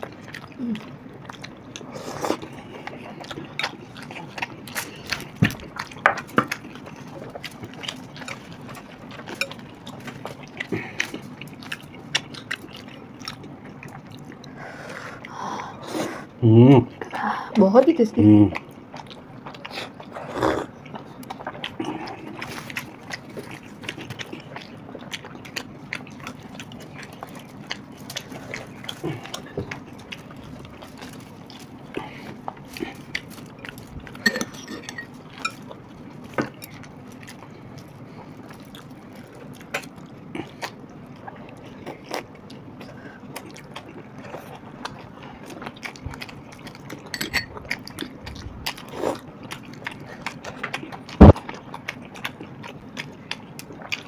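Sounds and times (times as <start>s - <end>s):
chewing: 0.0s - 15.4s, 18.5s - 54.0s
spoon clinking on bowl: 34.2s - 35.6s.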